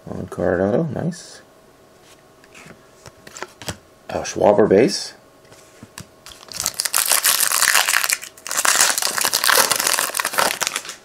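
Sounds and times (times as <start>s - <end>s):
foil wrapper crinkling and tearing: 6.2s - 11.0s.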